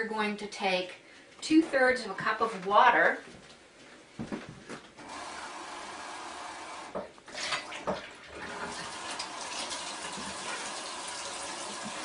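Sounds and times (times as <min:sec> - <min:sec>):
faucet running: 0:06.0 - 0:12.0.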